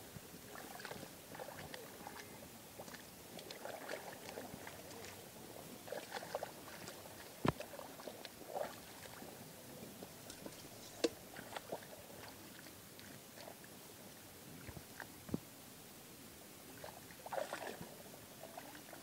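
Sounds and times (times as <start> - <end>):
hands splashing in muddy water: 0.5 - 5.2, 5.9 - 9.3, 16.8 - 17.9.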